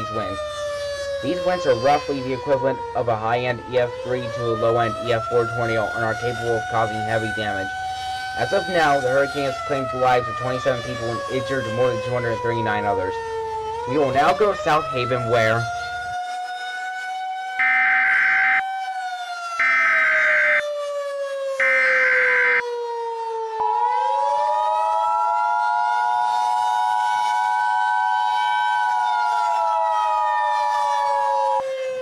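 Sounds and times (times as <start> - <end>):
siren rising and falling: 0.0 - 32.0.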